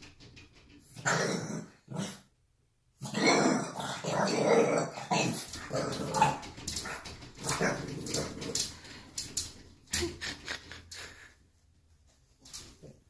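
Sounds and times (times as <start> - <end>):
dog growling and barking: 0.9 - 2.3, 3.0 - 8.9
dog claws clicking on mirror: 5.4 - 10.7.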